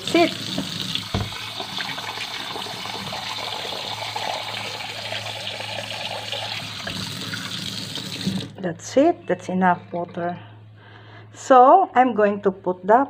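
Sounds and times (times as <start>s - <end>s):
tap water pouring into vase: 0.4s - 8.6s.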